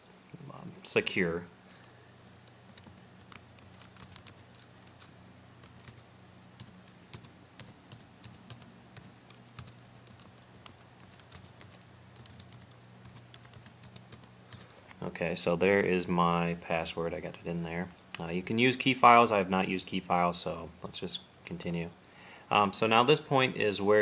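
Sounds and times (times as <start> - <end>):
steady low hum: 0.0 - 24.0
typing on a keyboard: 1.7 - 6.0, 6.6 - 14.7.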